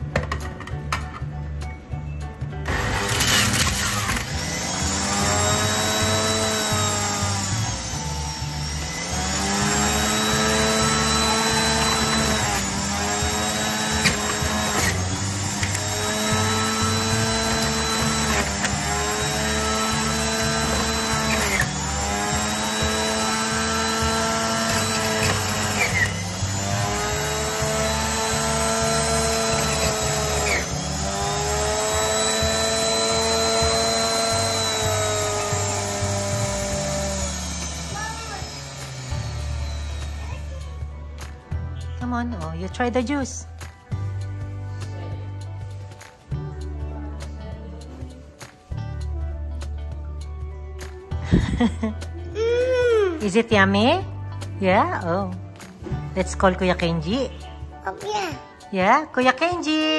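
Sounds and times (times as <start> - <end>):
background music: 0.0 - 59.9
juicer motor whining: 2.6 - 41.0.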